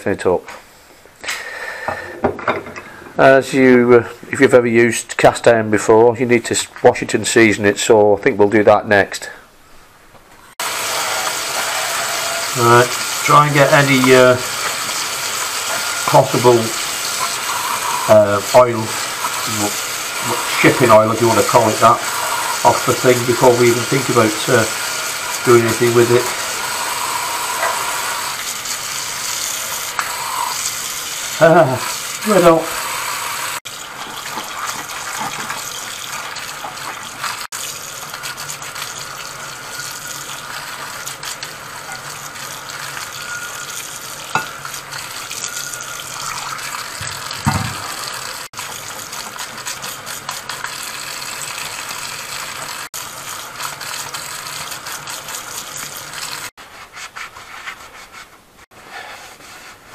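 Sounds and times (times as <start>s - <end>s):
tap water running onto pans: 10.6s - 56.6s
brush scrubbing pans: 10.6s - 59.9s
pans knocking: 44.3s - 44.6s, 47.0s - 48.0s.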